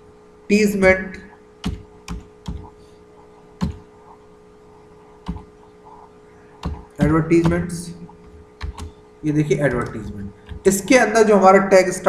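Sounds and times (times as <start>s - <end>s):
faint steady hum: 0.0s - 12.0s
keyboard keystrokes: 1.6s - 2.7s, 3.6s - 3.8s, 5.2s - 5.5s, 6.6s - 9.0s.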